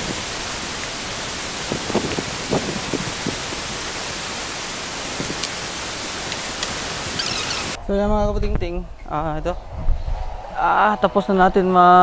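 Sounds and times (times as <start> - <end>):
static-like hiss: 0.0 - 7.8.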